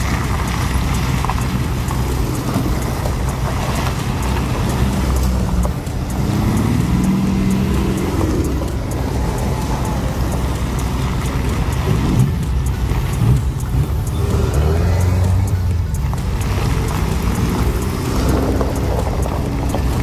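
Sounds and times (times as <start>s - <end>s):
motor trike engines passing: 0.0s - 20.0s.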